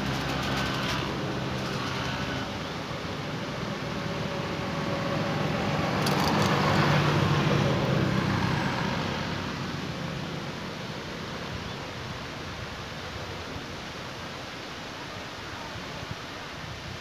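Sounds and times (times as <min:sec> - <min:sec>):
vehicle passing by: 0:00.0 - 0:10.4.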